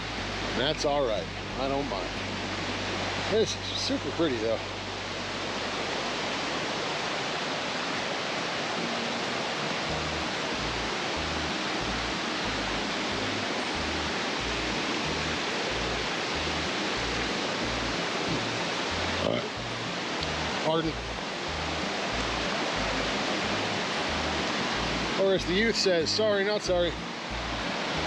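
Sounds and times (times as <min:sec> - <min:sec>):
stream water flowing: 0:00.0 - 0:28.0
pulsing bass line music: 0:09.9 - 0:28.0.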